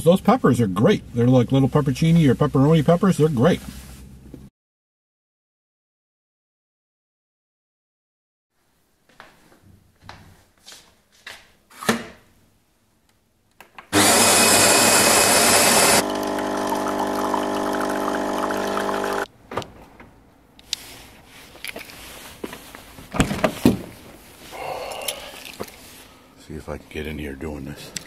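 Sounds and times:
brewing pump humming: 14.0s - 19.3s
coffee machine grinding beans: 14.0s - 19.3s
coffee pouring into mug: 14.0s - 19.3s.

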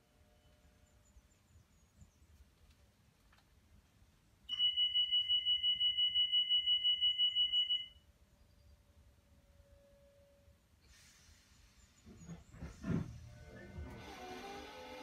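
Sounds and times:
two-tone electronic door alarm beeping: 4.5s - 8.1s.

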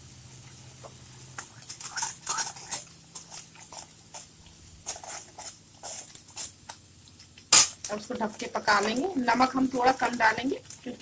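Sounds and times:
spoon stirring thick sauce: 0.8s - 7.5s
spoon scraping against pan: 1.2s - 6.8s.

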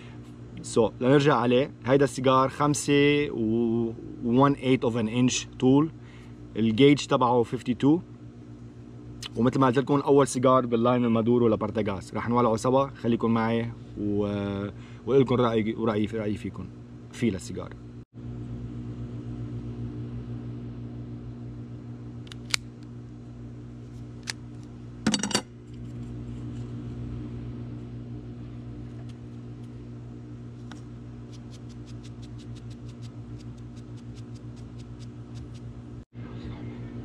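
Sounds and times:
steady low hum: 0.0s - 37.0s
cigar cutter and lighter clicks: 22.2s - 22.8s.

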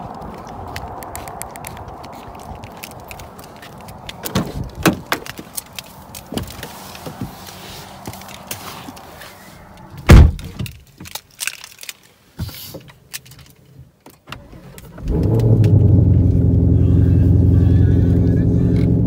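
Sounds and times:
small clicks and knocks: 9.9s - 15.8s
loud thump: 10.1s - 10.5s
car engine starting and idling: 14.3s - 19.0s.

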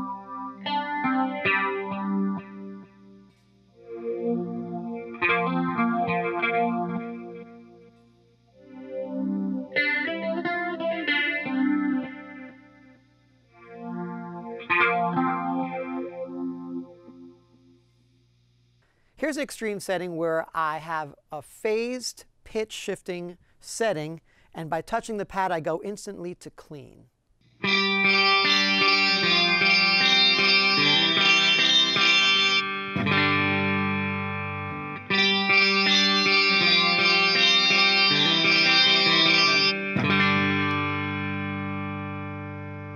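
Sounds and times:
electric guitar strummed chords: 0.0s - 17.9s, 27.6s - 42.9s
clean guitar chord ringing: 27.6s - 42.9s.

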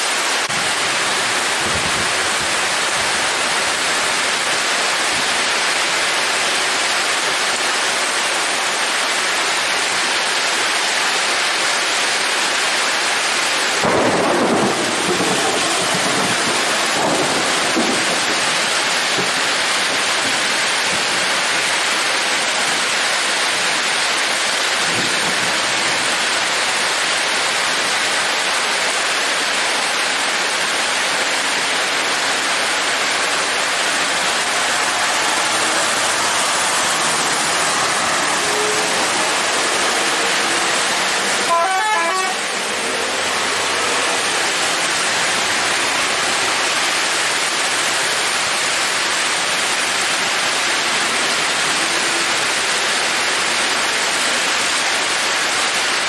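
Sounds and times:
heavy rain hissing: 0.0s - 56.0s
thunder clap rumbling: 13.8s - 21.3s.

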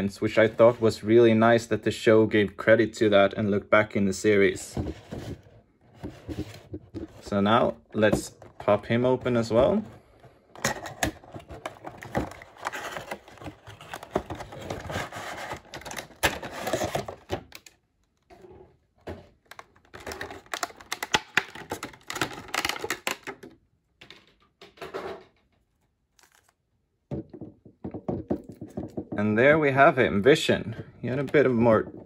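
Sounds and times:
cardboard scraping: 4.7s - 17.4s
plastic crinkling: 25.7s - 26.6s.

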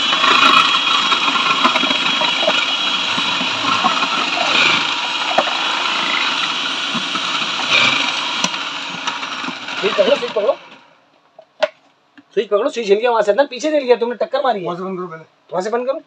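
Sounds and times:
electric chopper motor hum: 0.0s - 11.0s.

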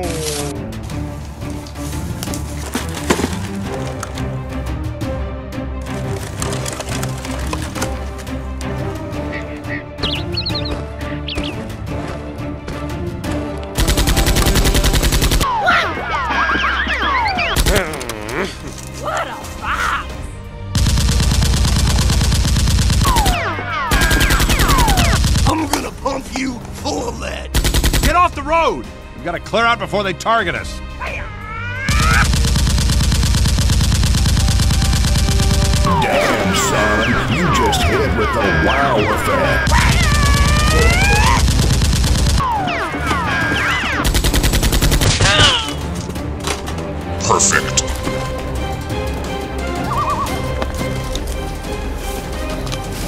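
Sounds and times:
automatic gunfire: 13.8s - 15.4s, 20.8s - 25.5s, 27.6s - 28.1s, 32.0s - 35.9s, 39.7s - 42.6s, 44.0s - 45.4s
machine-gun fire: 13.8s - 15.4s, 20.8s - 25.5s, 27.6s - 28.1s, 31.9s - 35.9s, 39.6s - 45.4s.

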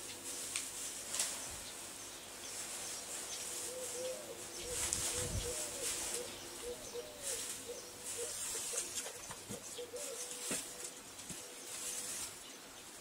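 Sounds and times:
dry hay rustling and crackling: 0.0s - 13.0s
bird calling: 3.3s - 11.7s.

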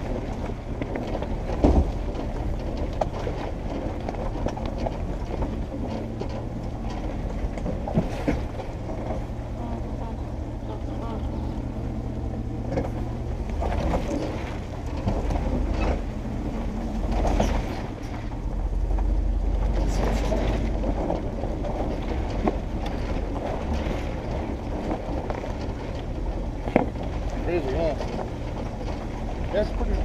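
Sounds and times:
body knocks and rattles: 0.0s - 10.6s, 11.6s - 30.0s
engine running low: 0.0s - 30.0s.

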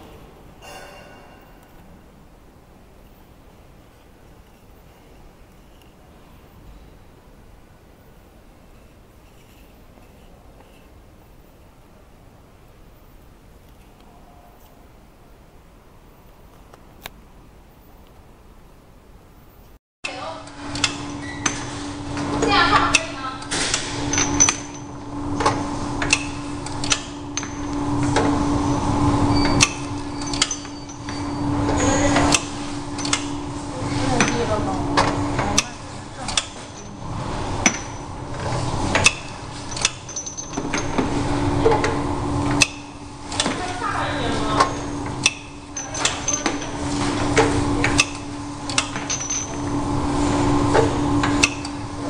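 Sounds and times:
labeling machine hum: 20.4s - 52.0s.

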